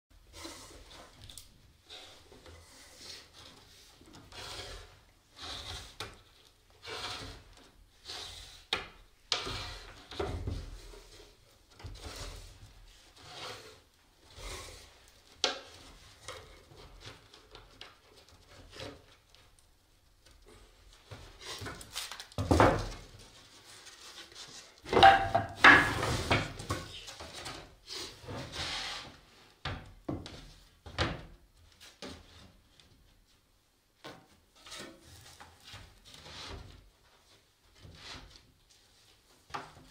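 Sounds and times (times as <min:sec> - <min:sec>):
wood scraping and knocking: 0:03.3 - 0:13.7, 0:21.0 - 0:32.5.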